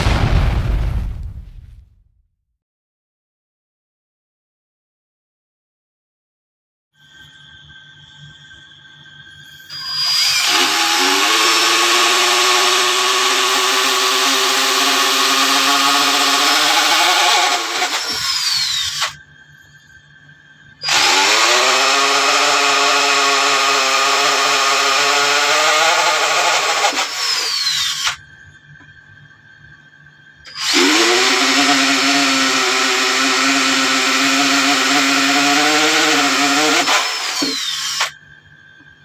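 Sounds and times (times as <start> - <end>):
electric drill boring through metal: 9.6 - 19.2, 20.8 - 28.2, 30.5 - 38.2.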